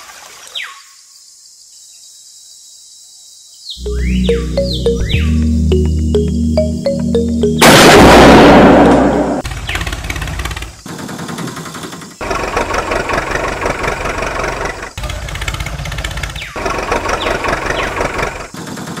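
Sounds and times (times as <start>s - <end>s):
loud noise burst: 7.6s - 9.5s
tractor engine chugging: 12.2s - 18.4s.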